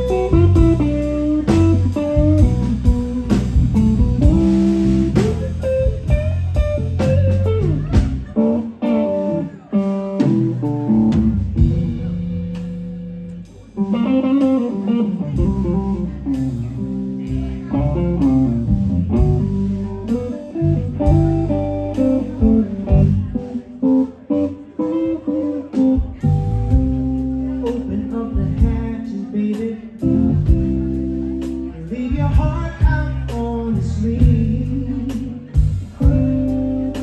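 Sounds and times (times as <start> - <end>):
drums: 0.0 - 37.0
electric bass: 0.0 - 37.0
electric guitar: 0.0 - 37.0.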